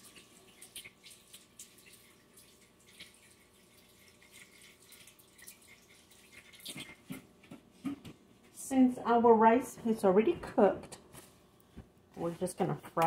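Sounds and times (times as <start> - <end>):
water splashing in sink: 0.0 - 8.0.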